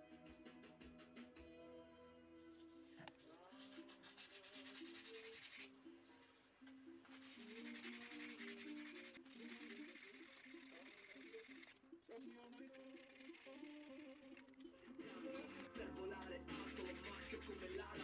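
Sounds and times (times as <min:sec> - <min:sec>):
sandpaper rubbing on wood: 0:03.3 - 0:05.7, 0:07.1 - 0:11.7, 0:16.5 - 0:17.9.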